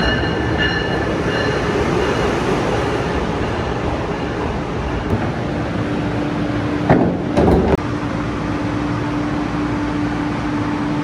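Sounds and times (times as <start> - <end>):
stopped train humming: 0.0 - 11.0
boarding ramp clunks: 6.9 - 7.8.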